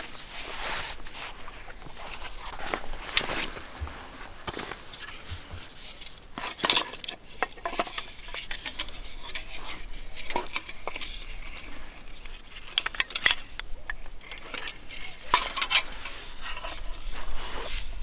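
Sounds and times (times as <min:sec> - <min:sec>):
cord and wood rubbing: 0:00.0 - 0:18.0.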